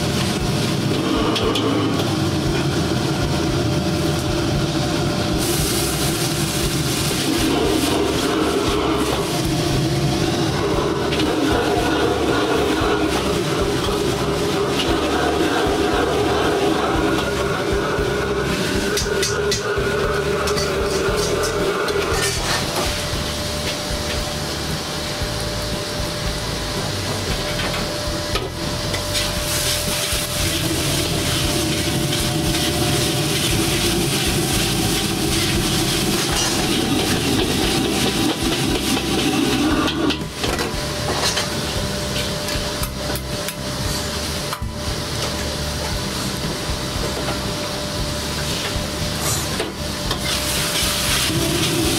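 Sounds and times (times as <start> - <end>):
sizzling in pan: 0.0 - 51.9
wok burner roaring: 0.0 - 51.9
metal spatula scraping wok: 5.4 - 23.2, 29.0 - 40.4, 48.4 - 51.9.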